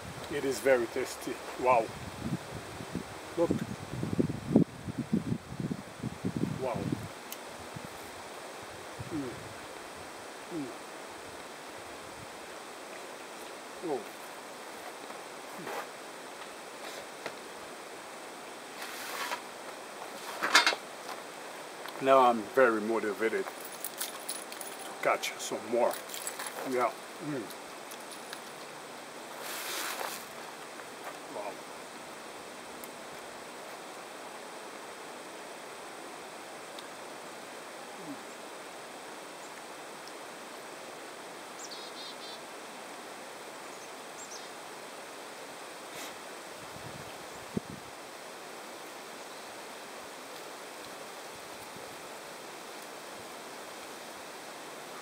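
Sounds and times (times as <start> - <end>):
outdoor background noise: 0.0 - 55.0
short sharp scrape: 18.8 - 19.4, 29.4 - 30.3.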